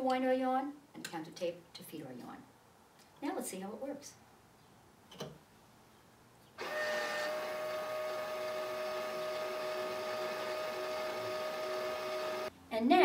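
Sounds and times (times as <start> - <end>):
small electric motor whining: 6.6 - 12.5.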